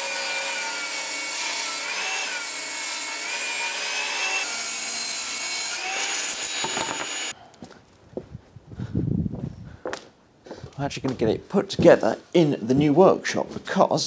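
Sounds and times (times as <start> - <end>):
table saw cutting wood: 0.0 - 7.3.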